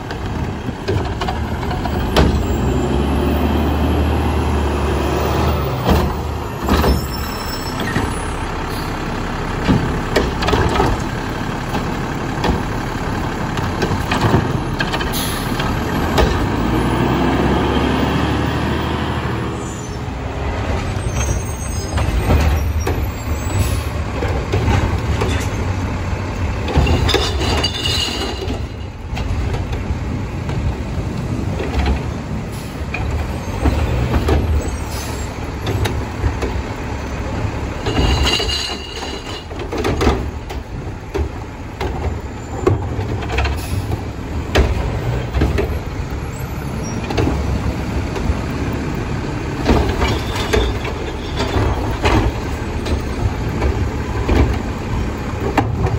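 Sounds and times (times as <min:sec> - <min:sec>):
truck engine revving: 0:00.2 - 0:26.8
metal knocks and clanks: 0:26.6 - 0:29.9, 0:37.8 - 0:45.9, 0:49.5 - 0:54.7.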